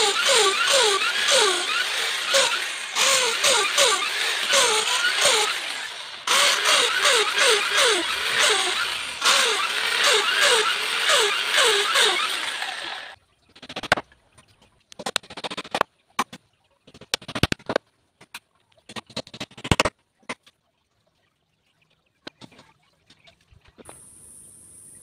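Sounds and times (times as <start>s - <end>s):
electric drill boring into wood: 0.0s - 13.2s.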